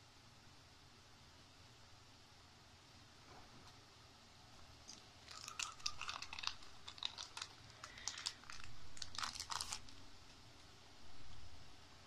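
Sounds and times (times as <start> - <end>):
plastic sleeve crinkling: 4.8 - 10.1.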